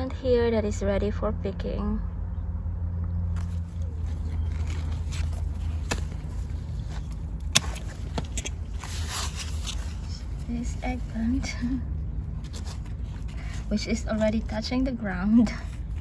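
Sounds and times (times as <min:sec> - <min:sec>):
steady low rumble: 0:00.0 - 0:16.0
leaves rustling by hand: 0:03.3 - 0:11.8.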